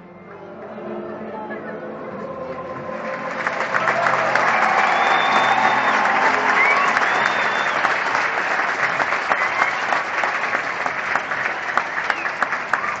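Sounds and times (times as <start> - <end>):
crowd applauding: 2.5 - 13.0
whistles: 4.4 - 8.3, 9.0 - 10.4, 11.2 - 13.0.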